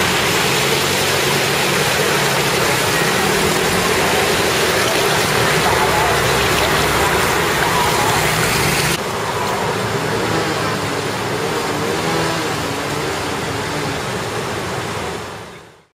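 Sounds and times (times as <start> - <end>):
vehicle engine running: 0.0 - 15.5
floodwater rushing and splashing: 0.0 - 15.9.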